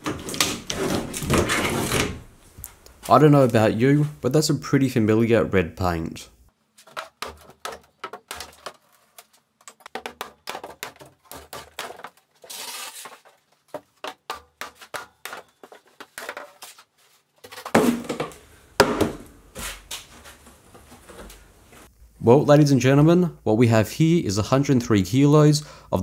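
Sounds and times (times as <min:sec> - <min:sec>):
wooden panels scraping: 0:00.0 - 0:02.4, 0:06.8 - 0:18.4
wooden panels thumping: 0:17.6 - 0:19.3.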